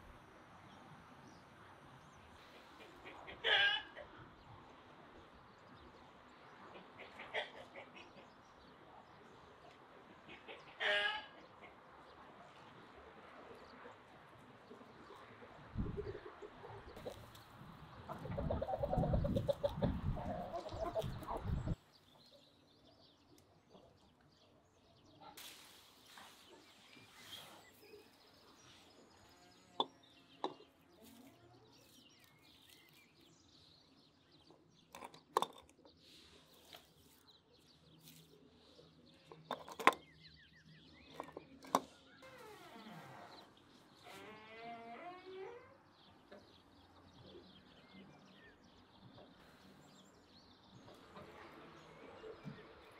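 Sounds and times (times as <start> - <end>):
hens clucking: 2.4 - 4.2, 6.7 - 8.4, 10.1 - 11.8, 15.8 - 21.8.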